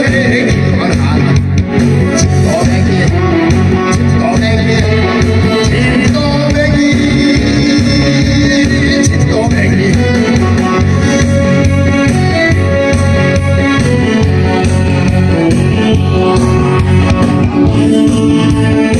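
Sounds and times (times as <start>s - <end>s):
man singing into microphone: 0.0s - 12.6s
backing track with steady beat: 0.0s - 18.9s.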